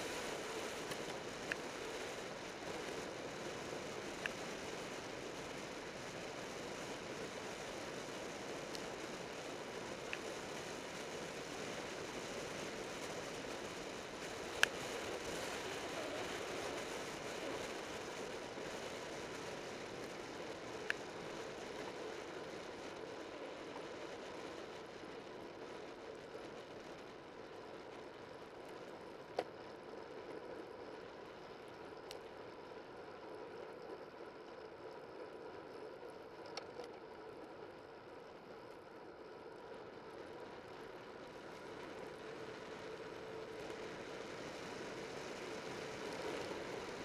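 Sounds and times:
sharp clicks from bike: 0:00.0 - 0:22.5, 0:38.6 - 0:47.0
bicycle rolling on road: 0:00.0 - 0:47.0.

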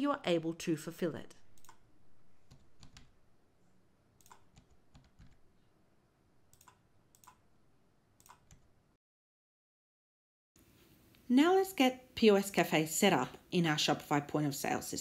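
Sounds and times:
keyboard typing: 0:01.5 - 0:03.2, 0:04.2 - 0:05.5, 0:06.5 - 0:07.4, 0:08.2 - 0:08.8.

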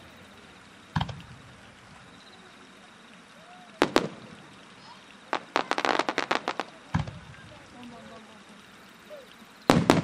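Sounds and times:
fireworks bangs: 0:03.8 - 0:07.7, 0:09.6 - 0:10.0.

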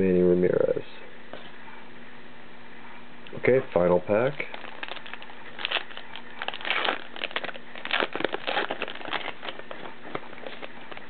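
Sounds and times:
card pack wrapper crinkling: 0:04.3 - 0:11.0.

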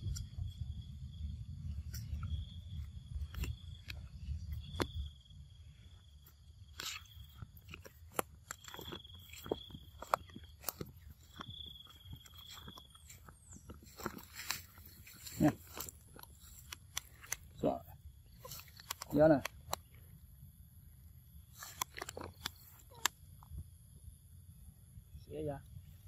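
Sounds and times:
monkey chewing cucumber: 0:06.8 - 0:17.6.

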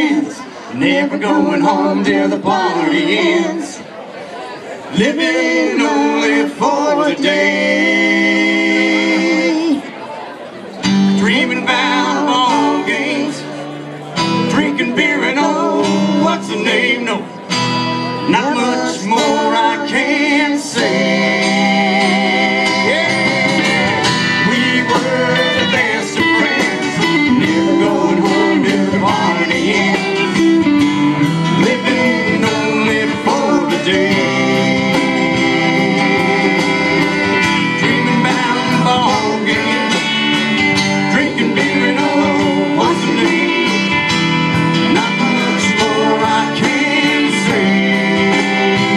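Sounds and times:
person singing: 0:00.0 - 0:03.8, 0:18.2 - 0:48.9
acoustic guitars: 0:00.0 - 0:48.9
drum kit: 0:20.8 - 0:48.9.

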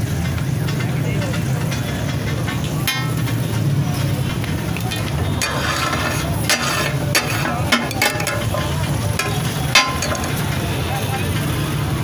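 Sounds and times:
spatula scraping griddle: 0:01.7 - 0:10.6
metal spatula clanking: 0:04.8 - 0:10.6.

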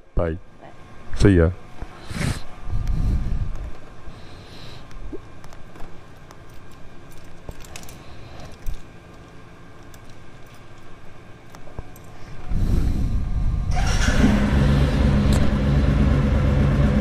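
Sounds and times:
motorcycle engine idling: 0:13.8 - 0:17.0.

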